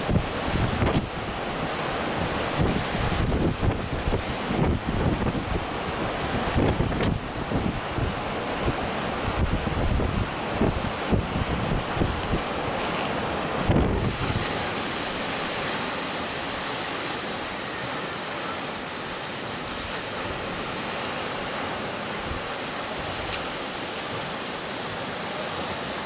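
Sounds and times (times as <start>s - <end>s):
wind gust on microphone: 0.0s - 17.7s
waves breaking: 0.0s - 26.0s.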